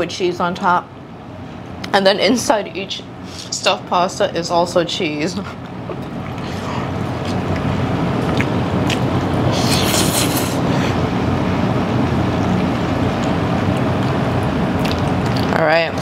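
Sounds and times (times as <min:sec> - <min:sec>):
restaurant dining room rumble: 0:00.0 - 0:16.0.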